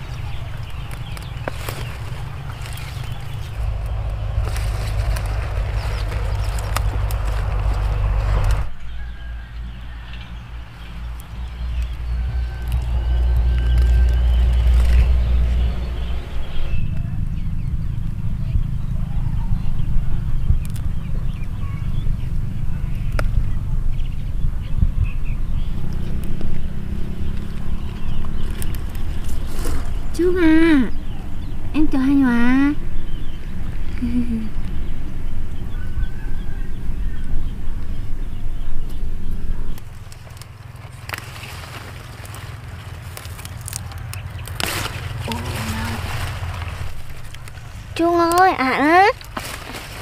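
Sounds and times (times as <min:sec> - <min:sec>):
short crackles: 0:00.0 - 0:08.7, 0:39.7 - 0:50.0
leaves rustling: 0:00.0 - 0:18.7, 0:25.4 - 0:31.1, 0:38.7 - 0:50.0
low steady rumble: 0:00.0 - 0:50.0
wind buffeting microphone: 0:00.0 - 0:50.0.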